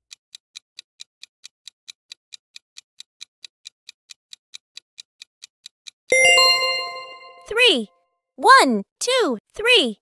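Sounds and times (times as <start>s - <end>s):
clock-style timer ticking: 0.0s - 7.9s.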